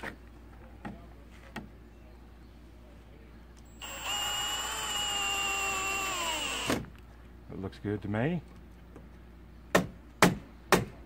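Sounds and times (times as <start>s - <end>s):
electric drill motor running: 3.7s - 6.8s.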